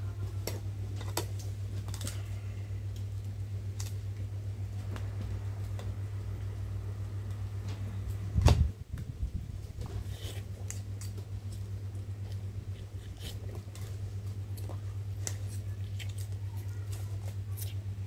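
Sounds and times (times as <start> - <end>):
low electric hum: 0.0 - 18.0
chopsticks scraping plastic bowl: 9.8 - 10.5.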